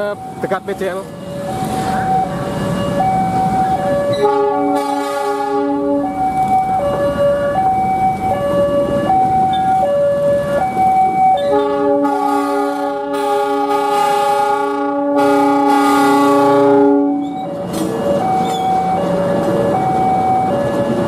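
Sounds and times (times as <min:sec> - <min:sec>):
level crossing warning siren: 0:00.0 - 0:21.0
train horn chord: 0:04.1 - 0:06.1, 0:11.4 - 0:17.3.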